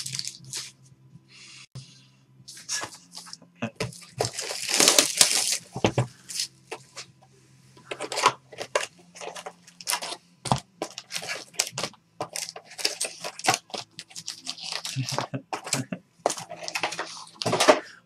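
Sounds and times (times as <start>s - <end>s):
shrink-wrap crinkling and tearing: 0.0s - 0.7s, 3.9s - 6.5s, 8.0s - 10.2s, 10.8s - 17.8s
foil packs rustling: 4.0s - 7.0s, 10.8s - 17.8s.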